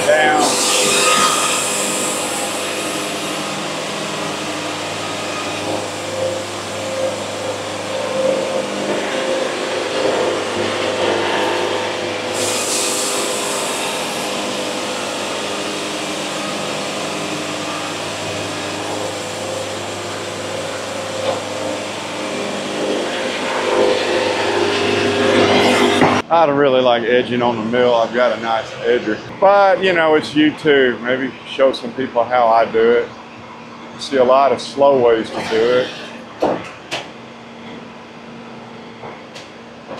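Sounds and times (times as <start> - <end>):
band sawmill sawing log: 0.0 - 26.2.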